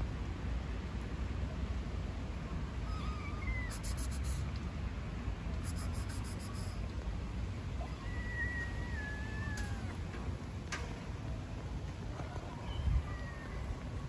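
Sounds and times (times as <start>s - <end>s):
kitten meowing faintly: 2.8s - 4.6s, 5.6s - 6.9s, 7.8s - 10.0s.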